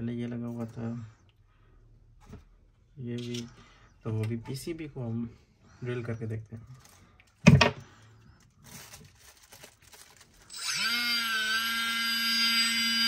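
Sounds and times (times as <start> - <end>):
drill motor whining: 10.4 - 13.0.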